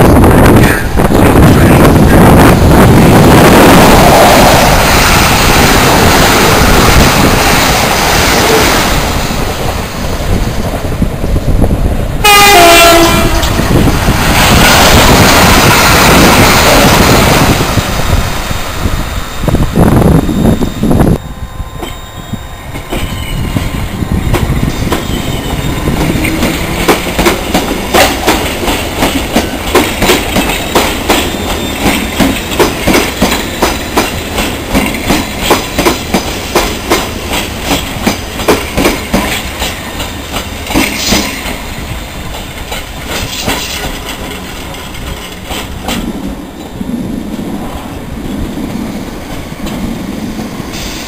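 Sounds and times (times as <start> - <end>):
train rumble: 0.0 - 51.0
train wheels clacking over rail joints: 24.3 - 46.8.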